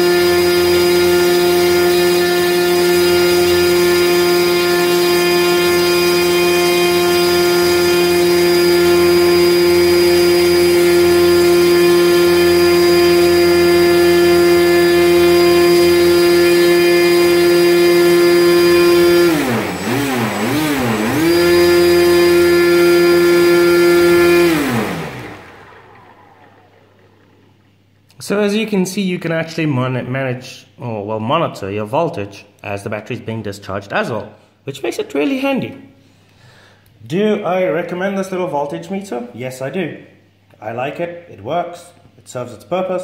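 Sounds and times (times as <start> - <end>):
electric motor whining: 0.0 - 27.8.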